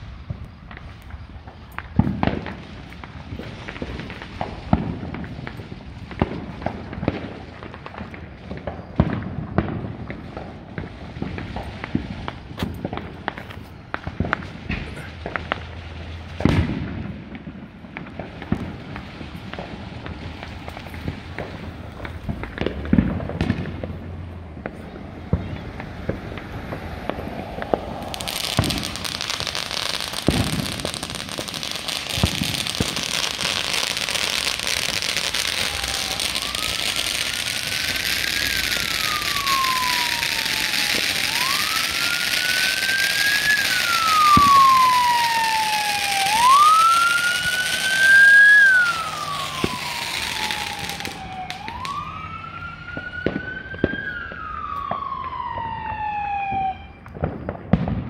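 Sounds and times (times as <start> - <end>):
firework pops and bangs: 0.0 - 52.1, 52.9 - 58.0
emergency siren wailing: 18.1 - 57.7.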